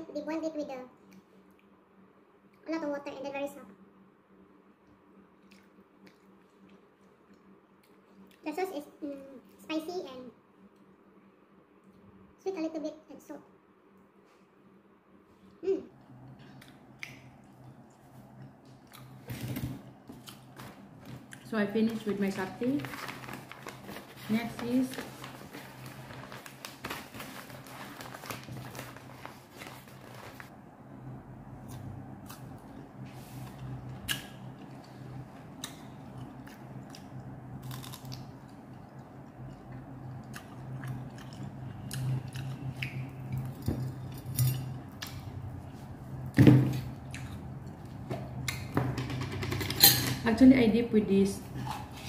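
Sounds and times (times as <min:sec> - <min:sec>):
steady low hum: 0:00.0 - 0:52.0
paper bag rustling: 0:22.0 - 0:30.5
crisp bites and chewing: 0:37.6 - 0:38.3.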